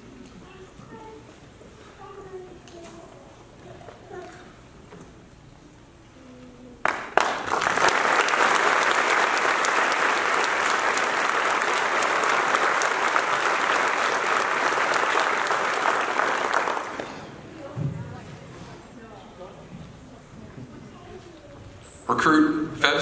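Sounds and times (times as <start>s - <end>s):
audience applauding: 6.8s - 17.4s.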